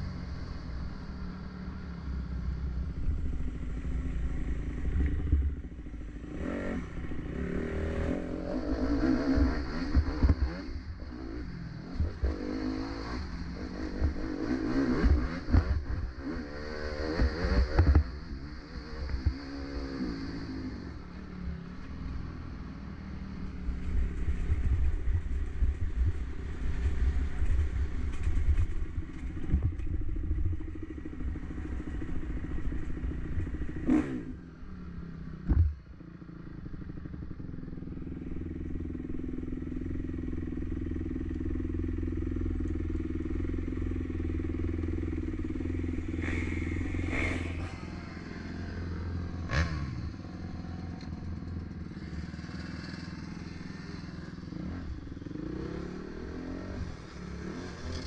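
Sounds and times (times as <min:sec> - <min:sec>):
dirt bike engine running: 0:23.6 - 0:58.0
second dirt bike revving: 0:45.7 - 0:58.0.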